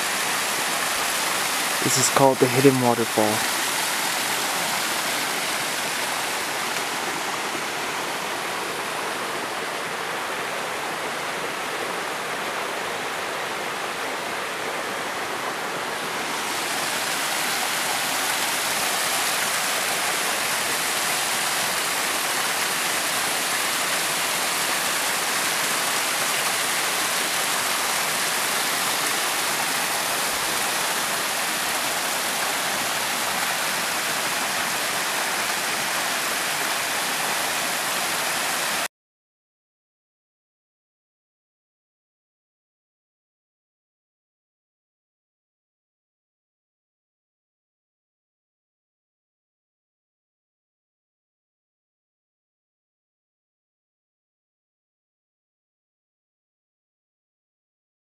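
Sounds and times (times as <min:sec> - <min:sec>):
waterfall rushing over rock: 0:00.0 - 0:38.9.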